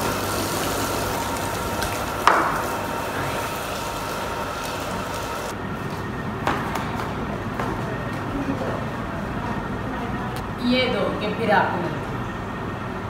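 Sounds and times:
hose water spraying: 0.0 - 5.5.

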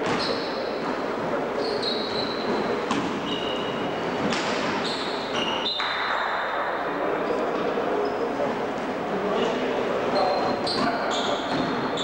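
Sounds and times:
shoe squeals: 0.0 - 0.7, 1.5 - 4.0, 4.8 - 5.9, 10.1 - 12.0.

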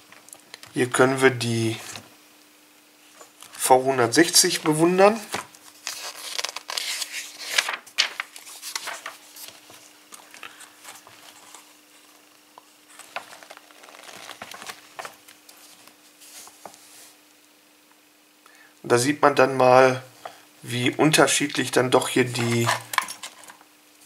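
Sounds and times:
paper pages rustling: 3.1 - 17.2, 22.3 - 23.6.

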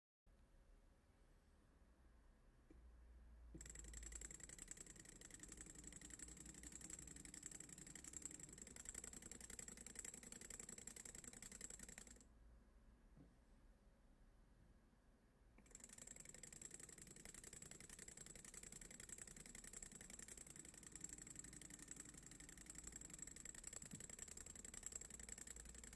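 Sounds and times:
stirling engine ticking rattle: 3.6 - 12.2, 15.7 - 25.9.

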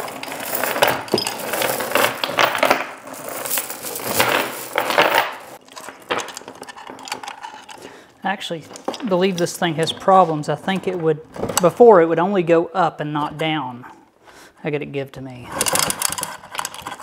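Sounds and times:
steel chain rattling and clinking: 0.0 - 7.9.

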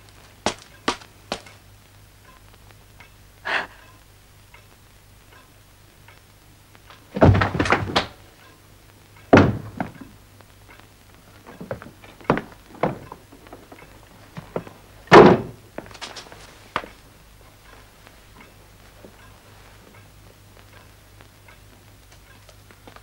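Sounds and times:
heavy thumps: 6.9 - 8.3, 9.3 - 10.1, 11.4 - 17.0.

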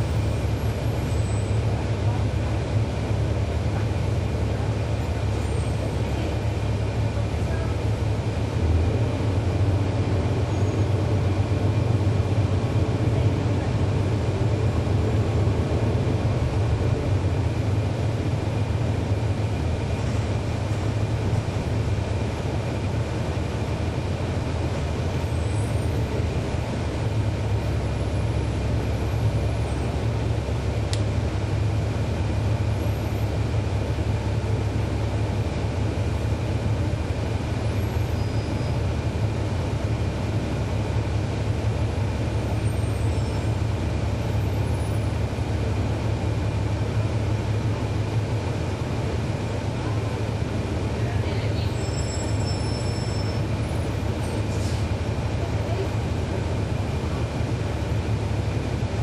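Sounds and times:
bus diesel engine rumble: 0.0 - 59.0.

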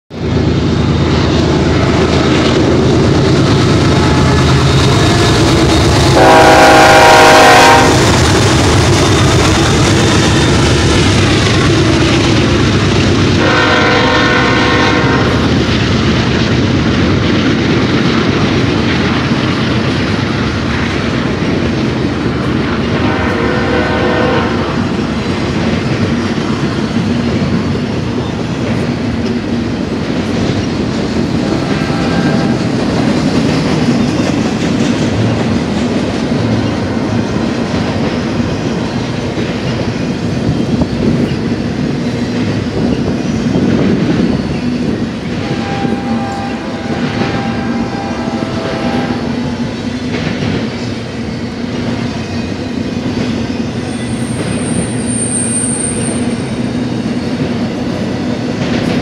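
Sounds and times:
clickety-clack of train wheels: 0.1 - 59.0
freight train rumbling past: 0.1 - 59.0
locomotive air horn: 6.2 - 8.2, 13.4 - 15.4, 23.0 - 24.7, 31.4 - 32.7, 45.4 - 49.6.

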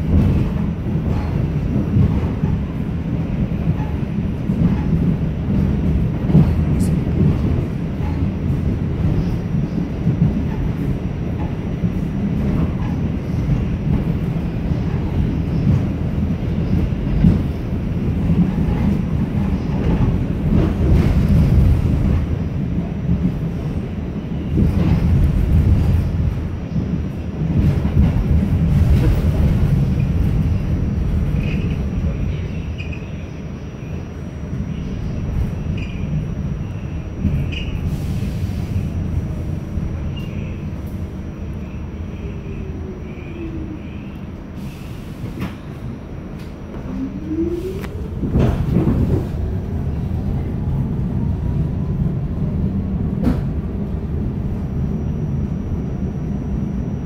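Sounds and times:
subway car rumble: 0.0 - 57.0
faint high wheel squeals: 32.4 - 33.4, 35.6 - 38.0.

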